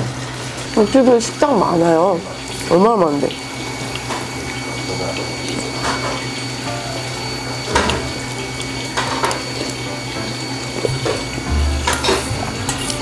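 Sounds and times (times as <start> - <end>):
spoon scraping metal bowl: 10.8 - 13.0.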